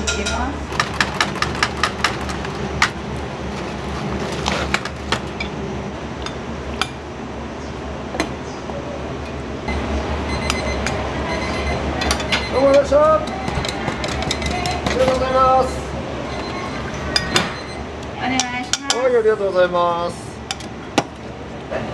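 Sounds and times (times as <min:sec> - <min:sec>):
dishware clinking: 0:00.0 - 0:00.5
low background hum: 0:00.0 - 0:21.9.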